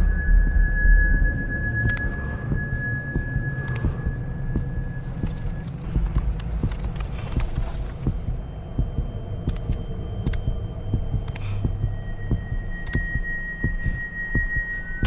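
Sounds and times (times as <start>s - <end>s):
heartbeat-like throbbing pulse: 0.0s - 15.0s
low droning hum: 0.0s - 15.0s
faint scattered clicks: 3.6s - 4.0s, 9.5s - 10.6s, 11.2s - 11.6s.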